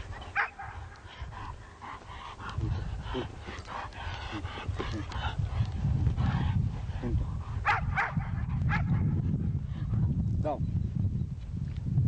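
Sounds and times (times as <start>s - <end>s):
steady low rumble: 0.0s - 12.0s
dogs barking: 0.1s - 1.0s, 7.6s - 9.1s.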